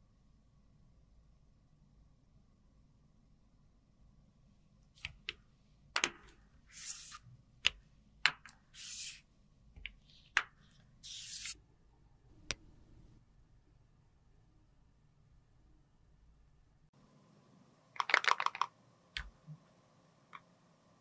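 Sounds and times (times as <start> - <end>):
short hissing swishes: 8.8 - 9.2, 11.0 - 11.6
plastic cases clicking and tapping: 18.0 - 18.7.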